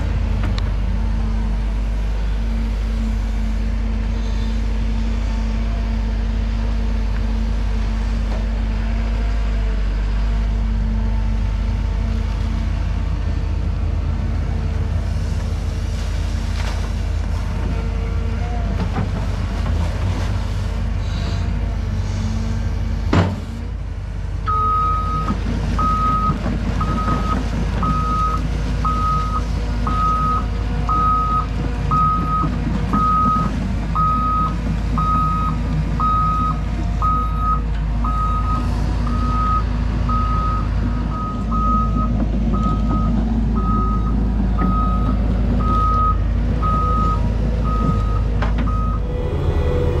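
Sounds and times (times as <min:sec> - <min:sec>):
excavator engine running: 0:00.0 - 0:50.0
excavator warning alarm beeping: 0:24.5 - 0:50.0.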